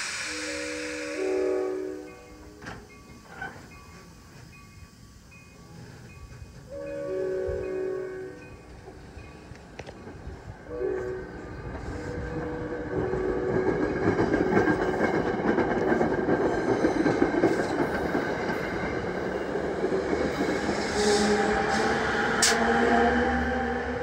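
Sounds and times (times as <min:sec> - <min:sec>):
train horn: 0:00.0 - 0:02.8, 0:06.7 - 0:08.7, 0:10.6 - 0:14.4, 0:20.8 - 0:24.0
train wheels on rails: 0:00.0 - 0:24.0.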